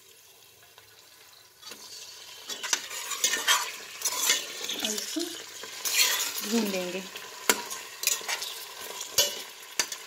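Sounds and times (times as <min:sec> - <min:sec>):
meat sizzling in oil: 0:00.0 - 0:10.0
ladle scraping pot: 0:01.6 - 0:06.5, 0:07.2 - 0:10.0.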